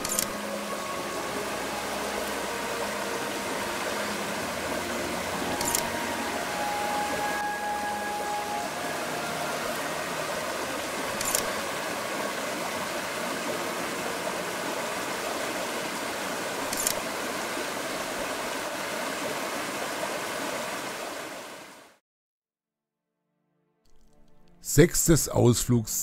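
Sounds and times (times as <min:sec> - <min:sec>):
short clicks: 0:00.0 - 0:00.4, 0:05.6 - 0:05.9, 0:11.2 - 0:11.5, 0:16.7 - 0:17.0
stream rushing over rocks: 0:00.0 - 0:22.0.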